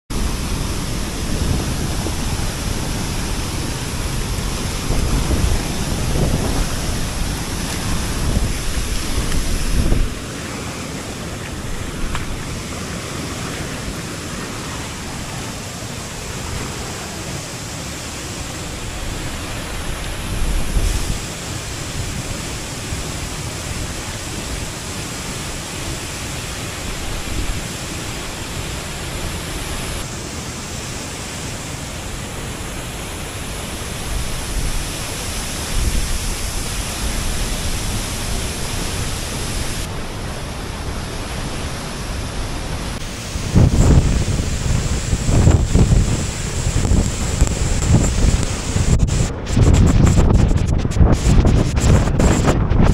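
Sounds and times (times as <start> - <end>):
waterfall roar: 0.1 - 52.9.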